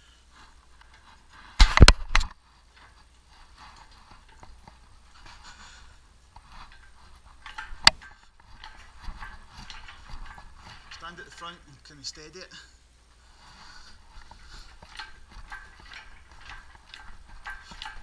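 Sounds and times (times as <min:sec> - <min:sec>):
rustling: 0:00.0 - 0:18.0
metal knocks and clanks: 0:06.4 - 0:11.6, 0:14.1 - 0:18.0.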